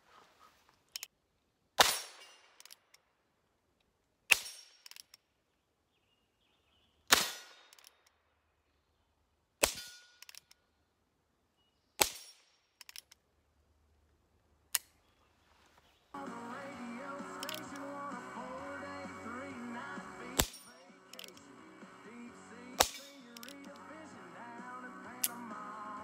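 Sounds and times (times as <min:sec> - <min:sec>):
suppressed pistol shots: 0:07.1 - 0:07.9, 0:22.8 - 0:23.7
faint clicks: 0:23.2 - 0:23.8.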